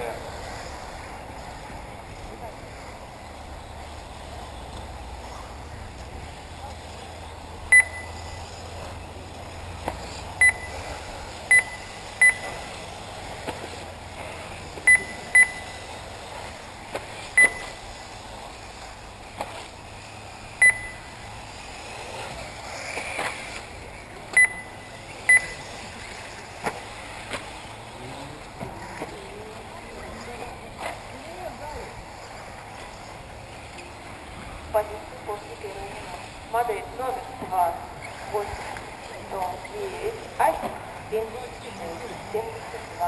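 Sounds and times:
steady background noise: 0:00.0 - 0:43.0
short high electronic beeps: 0:07.7 - 0:08.4, 0:10.4 - 0:10.8, 0:11.5 - 0:12.6, 0:14.9 - 0:15.8, 0:17.4 - 0:17.8, 0:20.6 - 0:21.1, 0:24.4 - 0:25.6.

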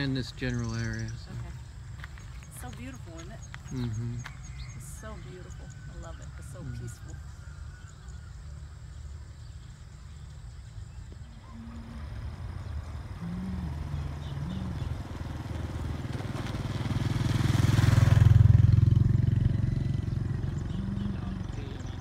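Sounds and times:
motorbike engine passing: 0:11.2 - 0:22.0.

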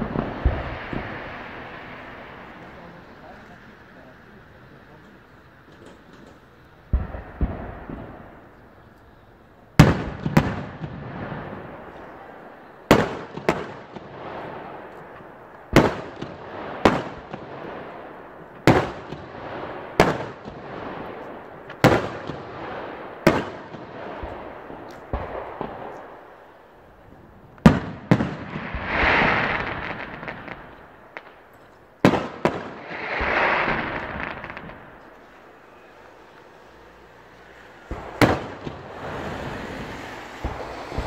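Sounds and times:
firework shells banging: 0:05.0 - 0:08.6, 0:27.5 - 0:41.0.

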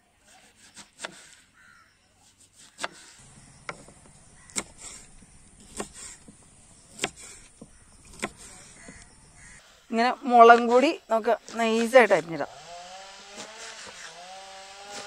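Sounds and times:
knife chopping on wooden board: 0:00.8 - 0:01.3, 0:02.6 - 0:09.0.

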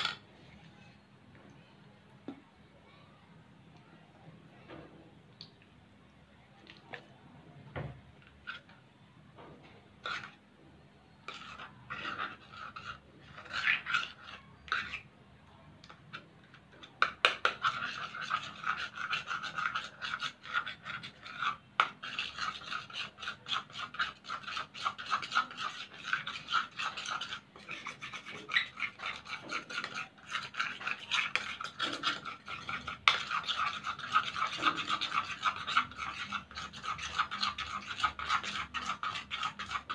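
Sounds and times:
metal spoon scraping a bowl: 0:00.0 - 0:01.1, 0:08.2 - 0:08.8, 0:10.0 - 0:10.4, 0:11.2 - 0:15.1, 0:15.9 - 0:39.9.

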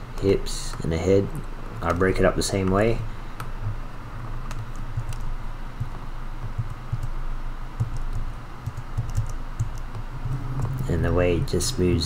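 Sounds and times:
steady low hum: 0:00.0 - 0:12.0
computer keys clicking: 0:01.4 - 0:02.8, 0:04.4 - 0:07.2, 0:07.8 - 0:10.0.

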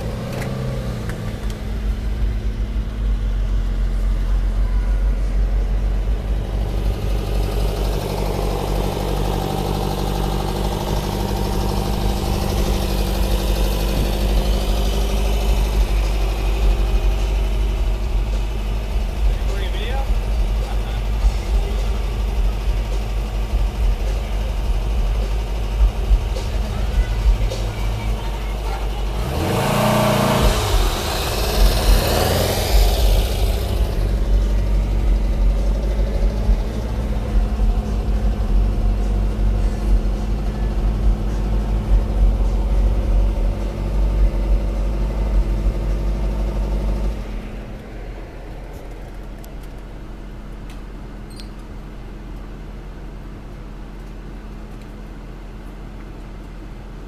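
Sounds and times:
engine accelerating: 0:00.0 - 0:57.0
engine and road rumble: 0:00.0 - 0:57.0.

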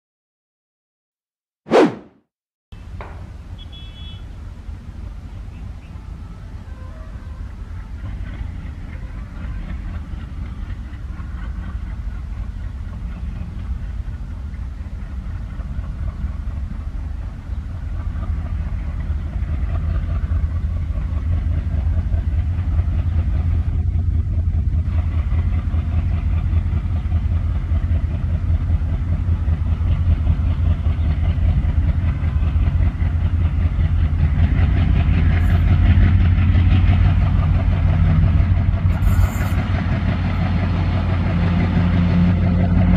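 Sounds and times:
diesel locomotive engines rumbling: 0:02.8 - 0:42.9.

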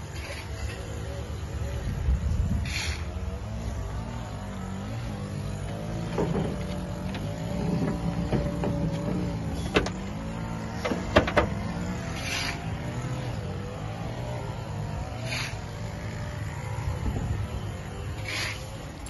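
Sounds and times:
car engine idling: 0:03.8 - 0:12.6.

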